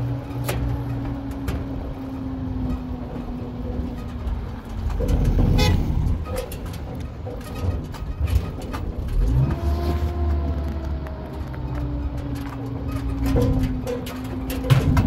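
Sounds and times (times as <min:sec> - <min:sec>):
cars passing: 0:00.0 - 0:15.0
passing vehicle horn: 0:05.5 - 0:06.0
knocks: 0:13.0 - 0:15.0.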